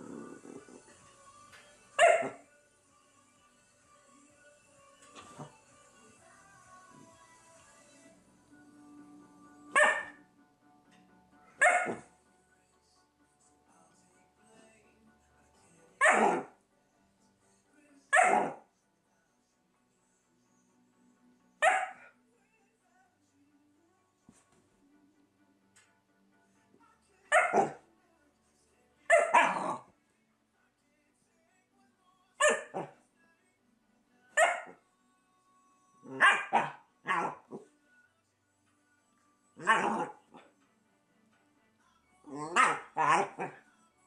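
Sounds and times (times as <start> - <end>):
puppy barking: 2.0 - 2.4, 9.7 - 10.2, 11.6 - 12.1, 16.0 - 16.5, 18.1 - 18.6, 21.6 - 22.1, 27.3 - 27.8, 29.1 - 29.8, 32.4 - 32.9, 34.4 - 34.8, 36.1 - 37.5, 42.3 - 43.6.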